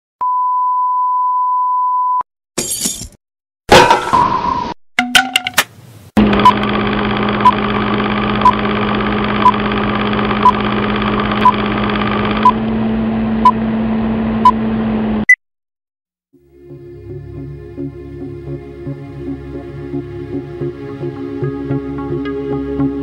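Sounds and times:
short beeps: 0:00.2 - 0:02.2
film projector whirring: 0:06.2 - 0:12.9.

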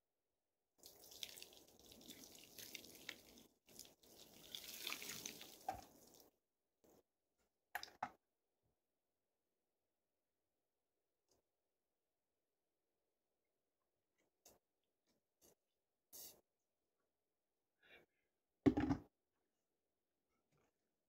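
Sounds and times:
water poured from bucket splashing: 0:00.8 - 0:06.2.

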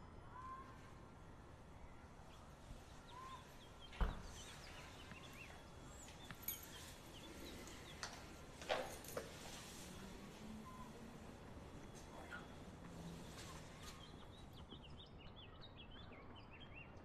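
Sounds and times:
birds chirping faintly: 0:01.7 - 0:17.0
front door shutting: 0:03.9 - 0:04.8.

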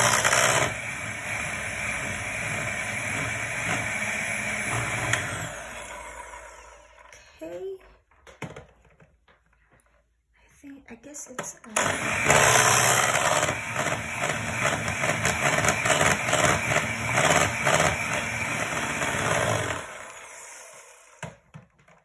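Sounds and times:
electric hand mixer whisking batter: 0:00.0 - 0:07.2, 0:11.8 - 0:21.4.

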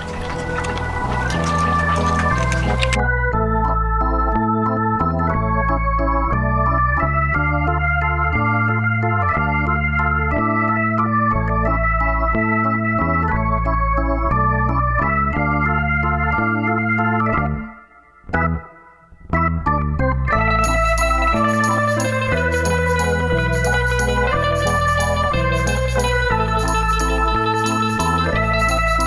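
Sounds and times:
keyboard chords over bass: 0:00.0 - 0:29.0.

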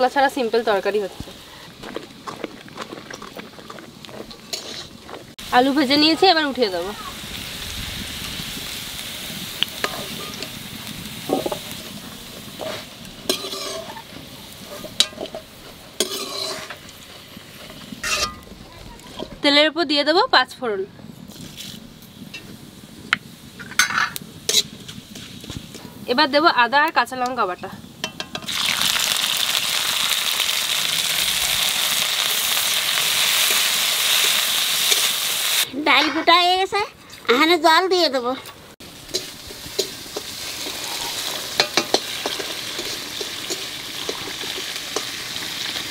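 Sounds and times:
food sizzling in hot oil: 0:00.0 - 0:01.9, 0:04.0 - 0:20.6, 0:21.3 - 0:35.7, 0:38.8 - 0:45.9
steel spoon clinking and scraping: 0:04.3 - 0:05.0, 0:12.4 - 0:17.3, 0:18.0 - 0:18.4, 0:23.6 - 0:25.3, 0:39.1 - 0:45.2.

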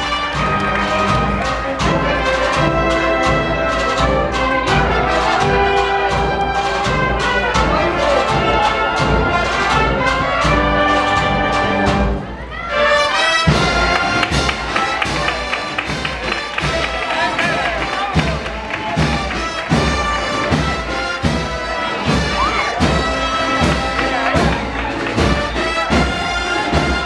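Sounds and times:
steady drum beat: 0:00.0 - 0:12.4, 0:13.4 - 0:27.0
brass band processional march: 0:00.0 - 0:27.0.

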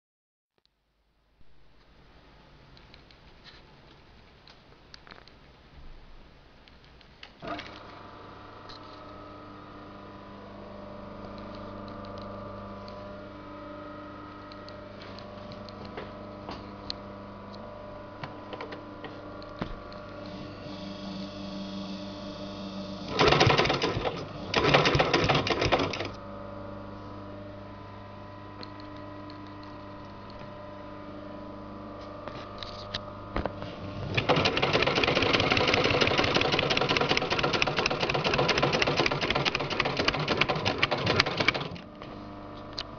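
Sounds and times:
steady hum: 0:07.5 - 0:42.9
sewing machine stitching: 0:22.9 - 0:26.1, 0:33.9 - 0:41.8.

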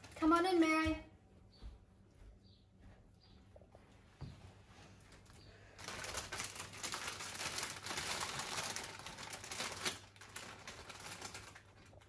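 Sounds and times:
crisp packet crinkling: 0:05.8 - 0:12.0.

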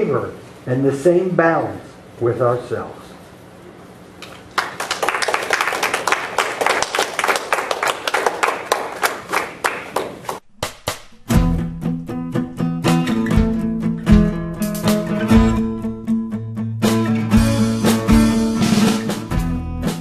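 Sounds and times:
audience applauding: 0:04.5 - 0:10.4
acoustic guitar music: 0:10.4 - 0:20.0.

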